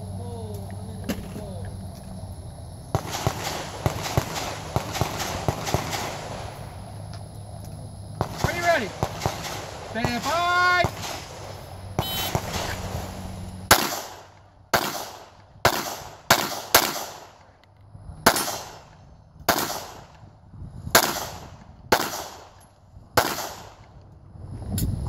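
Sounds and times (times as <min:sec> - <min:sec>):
pistol shots with echo: 0:03.0 - 0:06.5, 0:08.2 - 0:12.7, 0:13.7 - 0:17.5, 0:18.2 - 0:20.2, 0:21.0 - 0:22.6, 0:23.2 - 0:23.9.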